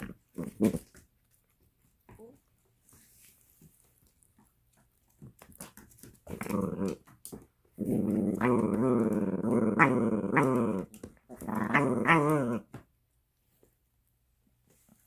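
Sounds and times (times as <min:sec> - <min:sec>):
dog play-growling: 0:00.0 - 0:01.0, 0:05.6 - 0:12.8.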